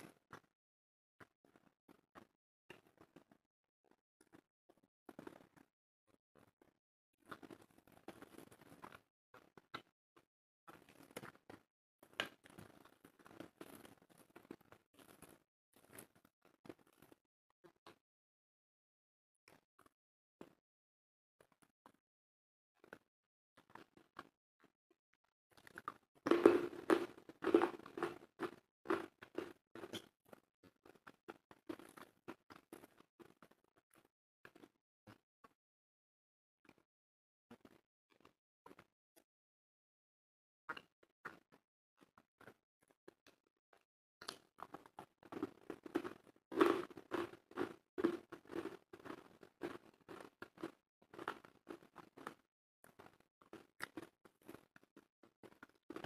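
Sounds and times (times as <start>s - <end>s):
person chewing crunchy food: 25.5s - 34.7s, 44.2s - 56.0s.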